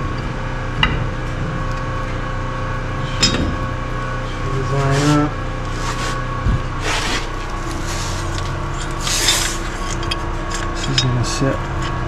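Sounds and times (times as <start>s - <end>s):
steady hum: 0.0s - 12.0s
metal knock: 3.2s - 3.7s
metal parts scraping: 6.8s - 12.0s.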